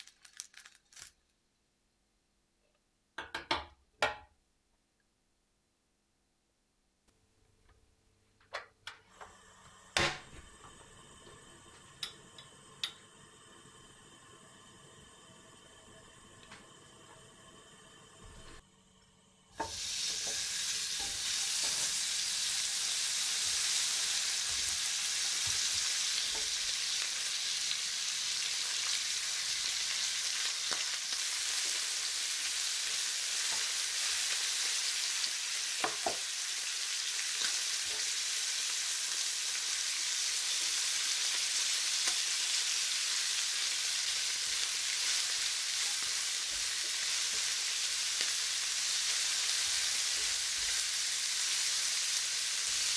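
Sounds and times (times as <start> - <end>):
meat sizzling in hot oil: 0.0 - 1.1, 19.2 - 52.9.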